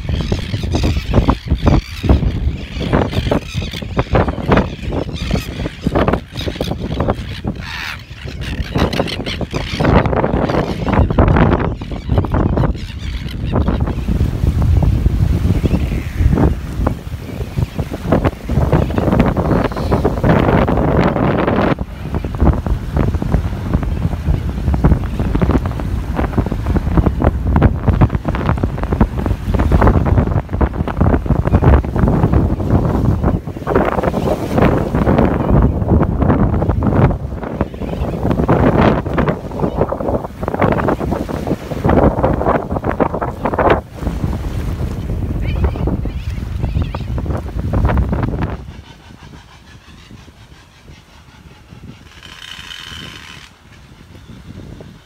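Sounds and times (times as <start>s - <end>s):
wind buffeting microphone: 0.0s - 55.0s
terns rasping calls: 0.1s - 13.8s.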